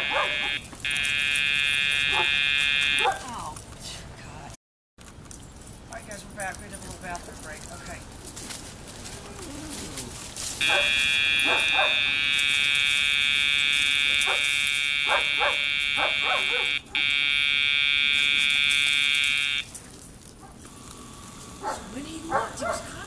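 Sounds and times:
electronic buzzer tone: 0:00.0 - 0:03.1, 0:10.6 - 0:19.7.

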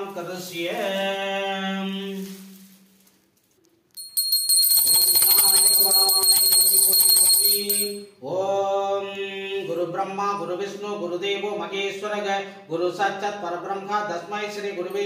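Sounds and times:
brass handbell ringing: 0:04.0 - 0:08.2.

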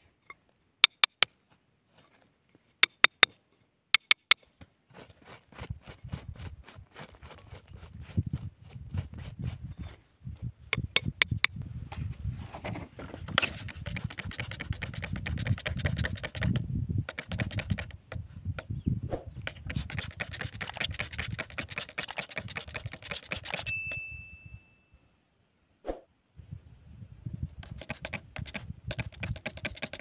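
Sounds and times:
fingers scraping gritty soil: 0:04.0 - 0:10.1, 0:10.8 - 0:23.7, 0:27.6 - 0:30.0
bell-like ding: 0:23.7 - 0:25.0.

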